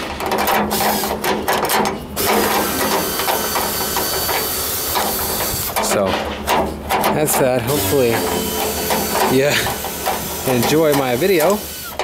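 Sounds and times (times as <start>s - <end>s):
screwdriver ratchet clicking: 7.7s - 12.0s.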